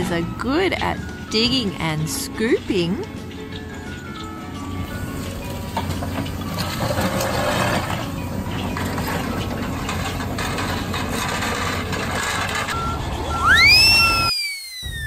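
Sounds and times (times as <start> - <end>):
excavator engine running: 0.0 - 14.3
machine rattles and knocks: 4.9 - 12.8.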